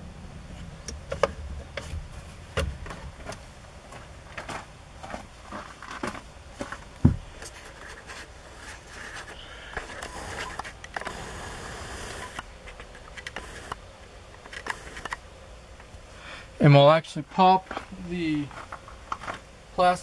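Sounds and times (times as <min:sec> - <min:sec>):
dull thump: 0:01.0 - 0:03.4, 0:07.0 - 0:07.3.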